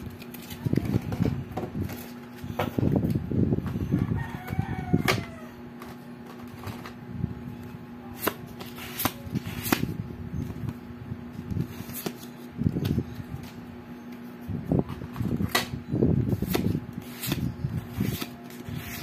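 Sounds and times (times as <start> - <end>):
playing cards rustling: 0.0 - 2.7, 8.1 - 10.7, 11.3 - 14.2, 16.3 - 19.0
cards sliding: 8.2 - 10.0, 11.6 - 12.4, 16.4 - 19.0.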